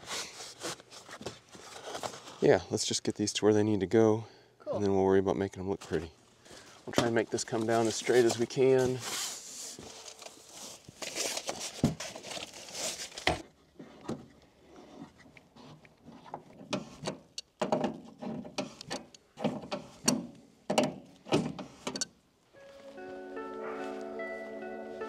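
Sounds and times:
copper tubing rustling: 5.8 - 17.0.

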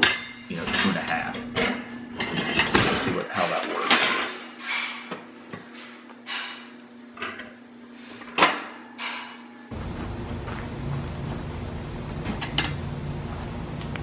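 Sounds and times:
wire rack clinking on tile: 0.0 - 5.0
low outdoor rumble: 9.7 - 14.0.

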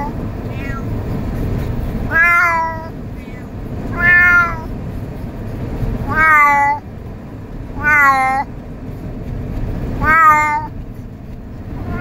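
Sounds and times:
cat meowing: 0.0 - 0.9, 2.1 - 4.7, 6.0 - 6.8, 7.8 - 8.5, 10.0 - 10.7.

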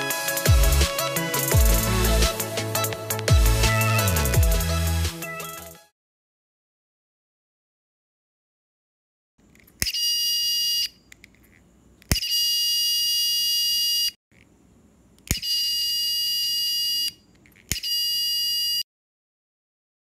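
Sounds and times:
high-pitched buzzer tone: 15.4 - 17.2, 17.8 - 18.8.

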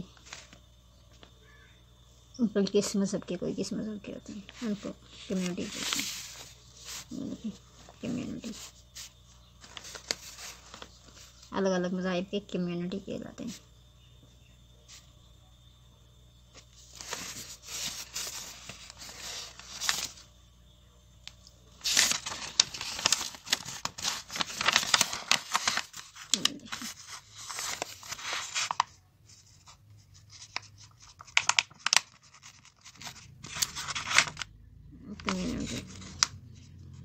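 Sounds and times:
paper rustling and crinkling: 0.0 - 1.3, 4.4 - 11.5, 16.5 - 20.3, 21.8 - 34.5, 35.2 - 37.0.

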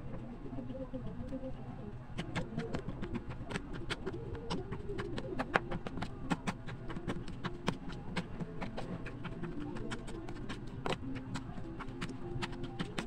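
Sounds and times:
spoon scraping plastic container: 2.2 - 13.0.

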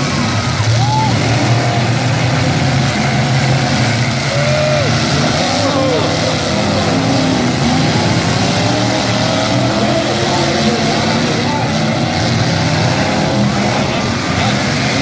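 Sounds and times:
truck engines revving: 0.0 - 15.0.

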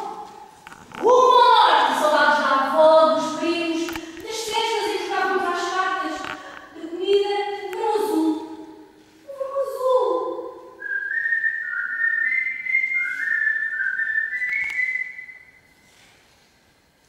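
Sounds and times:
person whistling a slow tune: 10.8 - 15.7.

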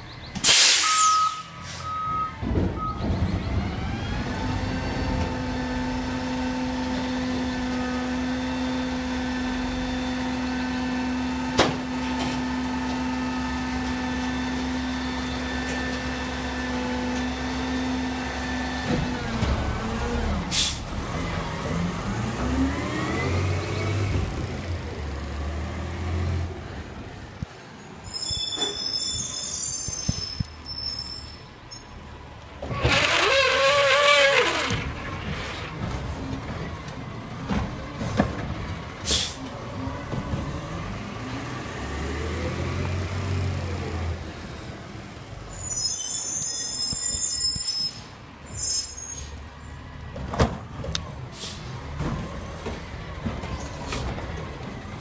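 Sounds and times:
air brake hiss: 0.4 - 1.9, 20.5 - 20.9, 39.0 - 39.5, 51.3 - 51.8
reversing beeps: 0.8 - 3.3
diesel engine revving: 1.6 - 27.4, 32.0 - 45.6.

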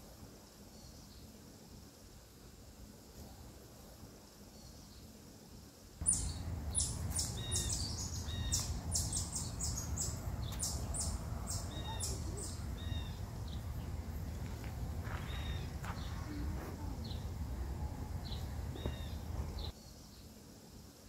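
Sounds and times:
low outdoor rumble: 6.0 - 19.7
small birds chirping: 6.0 - 20.3.

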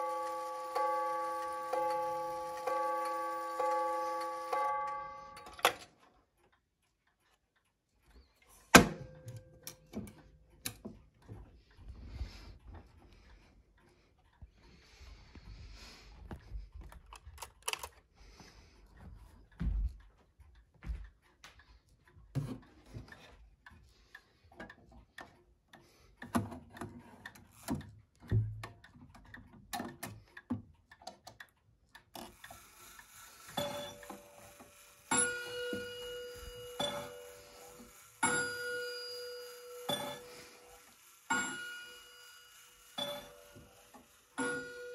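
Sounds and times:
clock strike ringing: 0.0 - 5.8, 32.7 - 44.9
clock ticks: 0.0 - 44.9.

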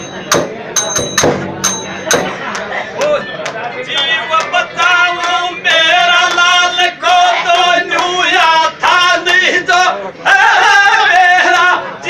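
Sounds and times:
men singing folk song: 3.9 - 12.0.

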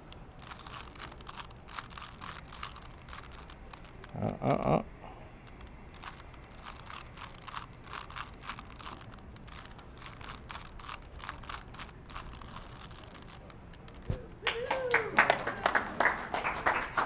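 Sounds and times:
puzzle cube clicking: 0.0 - 4.8, 5.4 - 14.2.

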